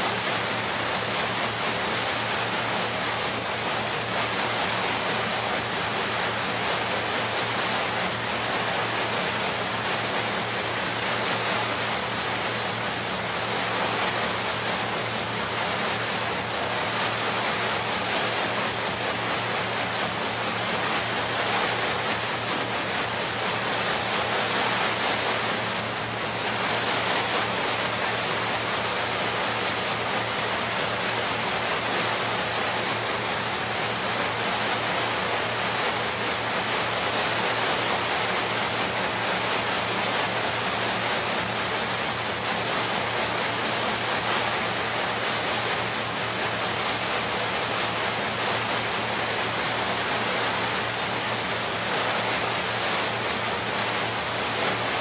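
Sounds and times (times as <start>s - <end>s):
water rushing: 0.0s - 55.0s.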